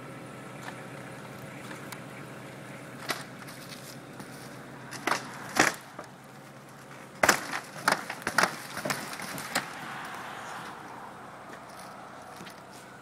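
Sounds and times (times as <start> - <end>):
roof shingles cracking underfoot: 3.0 - 10.2.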